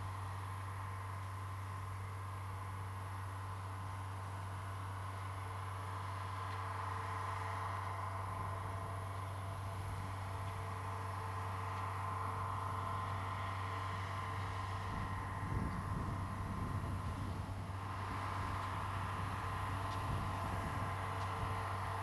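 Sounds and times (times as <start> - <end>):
pump engine humming: 0.0 - 22.0.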